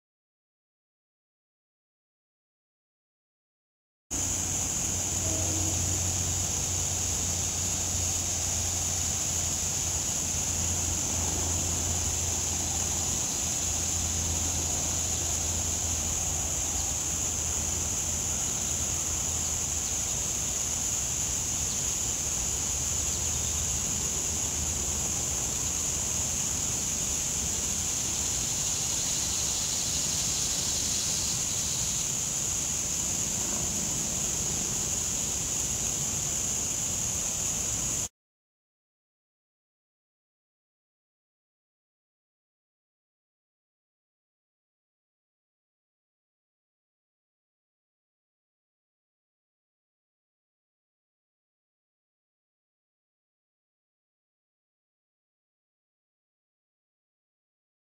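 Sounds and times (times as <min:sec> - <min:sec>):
constant high hiss: 0:04.1 - 0:38.1.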